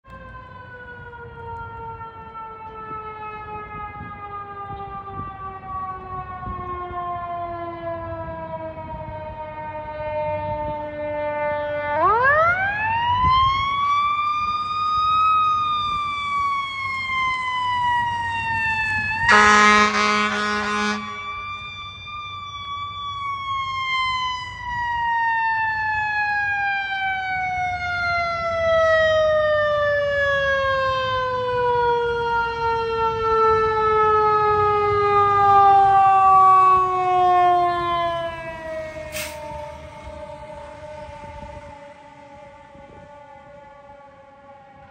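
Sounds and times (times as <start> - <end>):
emergency vehicle siren wailing: 0.0 - 44.9
short horn blast: 19.3 - 21.3, 39.1 - 39.5.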